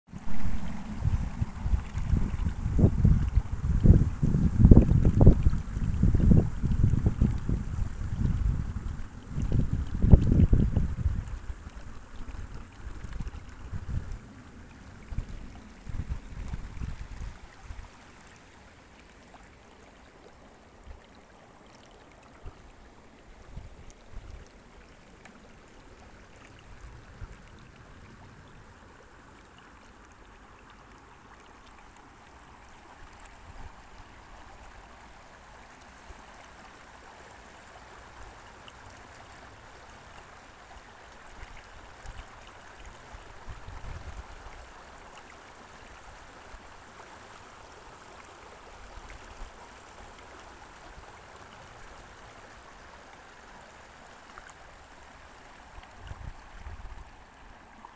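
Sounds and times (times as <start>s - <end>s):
creek babbling over pebbles: 0.1s - 57.9s.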